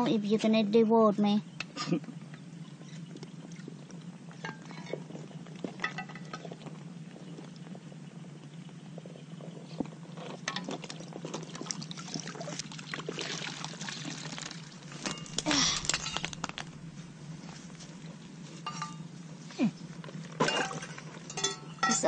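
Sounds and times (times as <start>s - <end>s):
steady low hum: 0.0s - 22.0s
water splashing from bucket: 10.8s - 16.9s.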